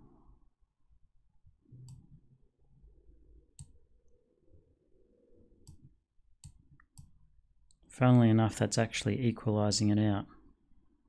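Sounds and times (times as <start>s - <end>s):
computer mouse clicks: 1.8s - 2.1s, 3.6s - 3.8s, 5.6s - 7.2s.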